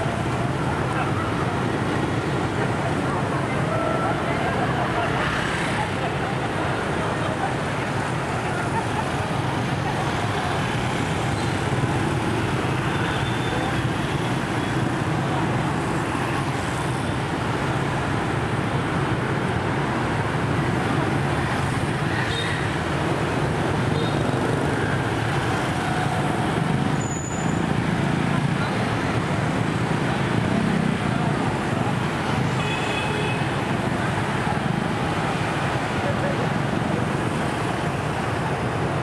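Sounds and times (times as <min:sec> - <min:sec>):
scooters and motorbikes passing: 0:00.0 - 0:17.1.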